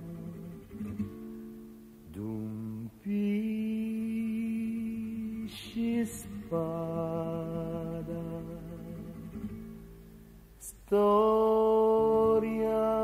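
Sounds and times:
slow song with sung long notes: 0:00.0 - 0:13.0.

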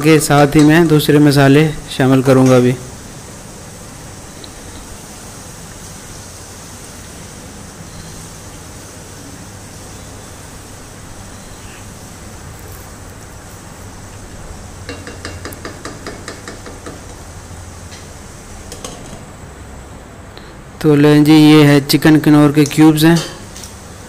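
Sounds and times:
food frying hiss: 0:00.0 - 0:24.0
spatula tapping pot: 0:14.8 - 0:17.2.

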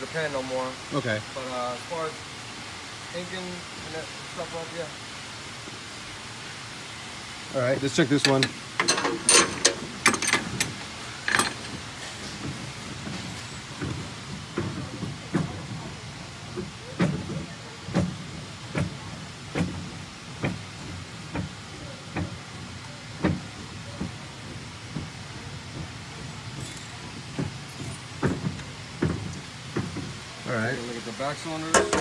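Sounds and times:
machine clunking: 0:08.2 - 0:15.8.

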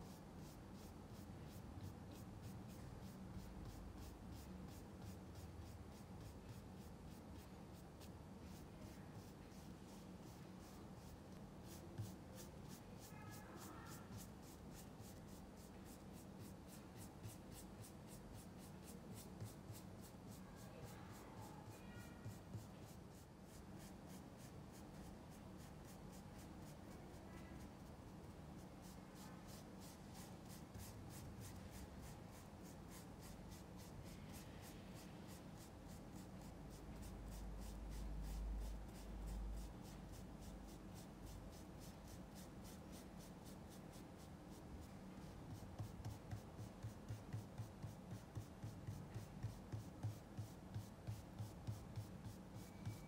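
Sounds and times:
paintbrush dabbing: 0:00.0 - 0:53.0
paintbrush scrubbing on canvas: 0:00.1 - 0:27.0, 0:45.5 - 0:53.0.

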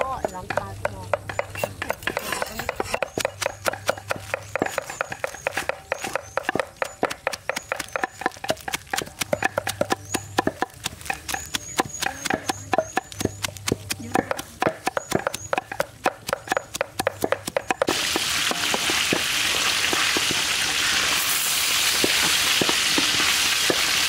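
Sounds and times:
cleaver chopping on wooden block: 0:00.1 - 0:19.2.

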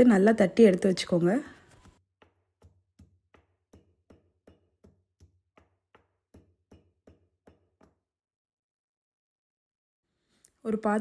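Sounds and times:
pestle pounding in stone mortar: 0:02.2 - 0:08.1.

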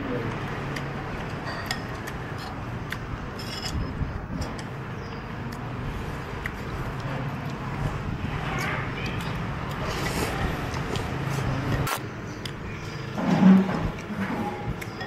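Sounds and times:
busy eatery hum: 0:00.0 - 0:15.0
traffic: 0:00.0 - 0:15.0
utensils clinking on ceramic bowl: 0:01.2 - 0:02.6, 0:03.3 - 0:04.8.

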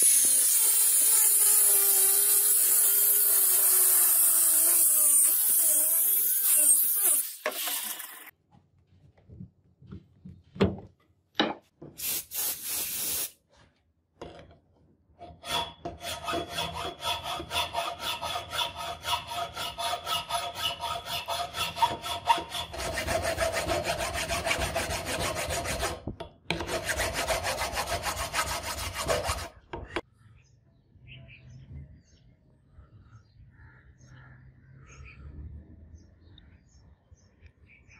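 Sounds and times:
hand file rasping on brass: 0:15.5 - 0:29.5.

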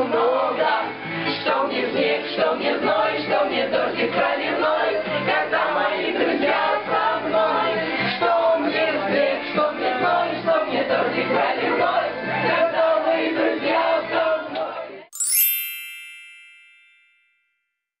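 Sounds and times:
group of people singing: 0:00.0 - 0:15.0
bright sparkling chime: 0:15.2 - 0:17.6.

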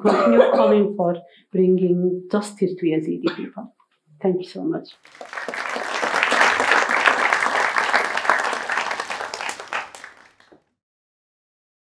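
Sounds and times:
audience applauding: 0:05.0 - 0:10.6.

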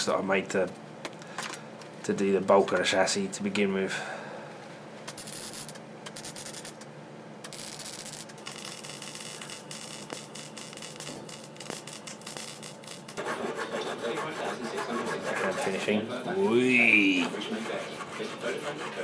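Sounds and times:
welding arc crackling: 0:05.1 - 0:13.2.

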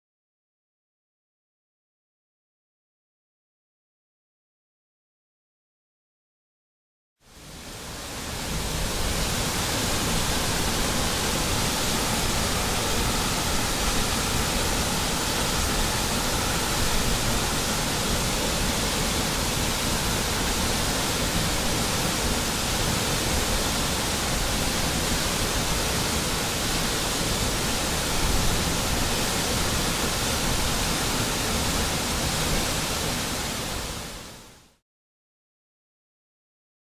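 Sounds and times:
waterfall rushing: 0:07.3 - 0:34.4.

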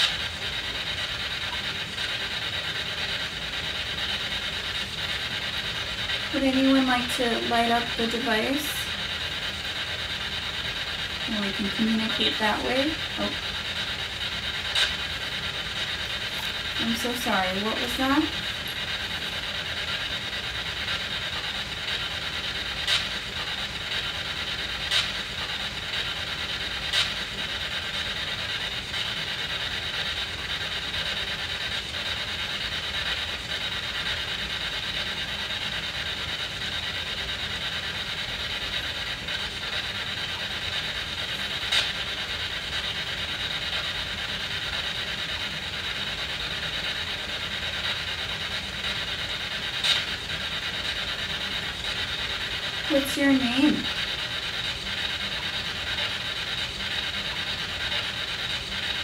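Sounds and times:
radio static hiss: 0:00.0 - 0:30.8, 0:47.4 - 0:59.0.

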